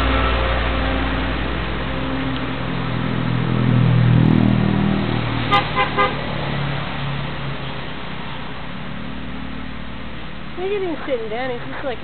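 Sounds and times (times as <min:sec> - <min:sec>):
vehicle engine passing by: 0:00.0 - 0:12.0
horn toots: 0:05.5 - 0:06.2.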